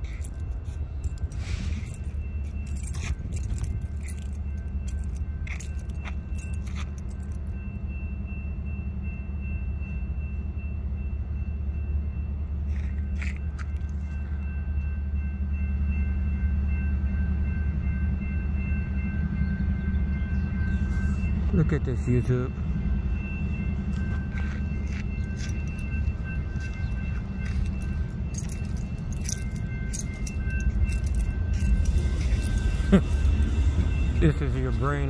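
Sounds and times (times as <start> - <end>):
jingling clicks: 0.0 - 7.5, 23.9 - 35.0
street traffic rumble: 0.0 - 7.8, 19.1 - 35.0.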